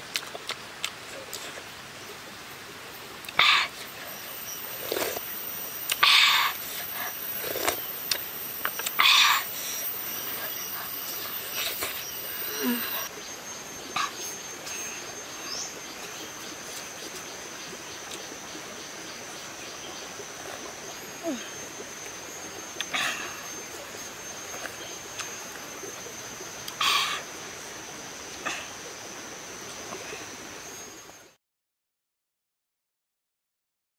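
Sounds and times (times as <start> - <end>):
high-pitched insect buzz: 3.4 - 17.4
person slurping from spoon: 7.4 - 7.8.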